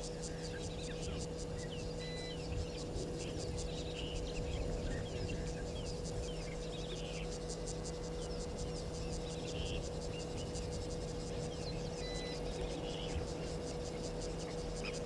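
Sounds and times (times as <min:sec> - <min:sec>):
insect chirping in rapid pulses: 0:00.0 - 0:15.0
steady low hum: 0:00.0 - 0:15.0.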